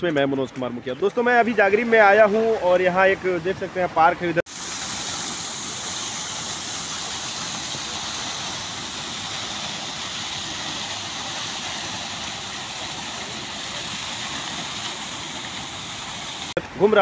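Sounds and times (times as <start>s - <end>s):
fountain splashing into basin: 0.2s - 17.0s.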